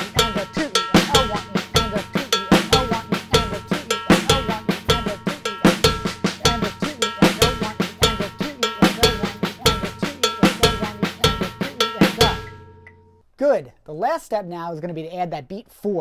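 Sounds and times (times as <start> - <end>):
bass drum: 0.0 - 12.8
drum kit groove: 0.0 - 12.9
snare ghost notes: 0.0 - 13.0
cowbell ringing: 0.0 - 13.1.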